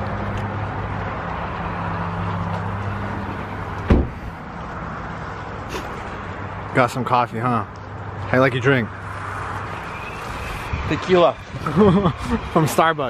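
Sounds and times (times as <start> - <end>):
vehicle engine humming: 0.0 - 12.7
car door slamming: 3.8 - 4.4.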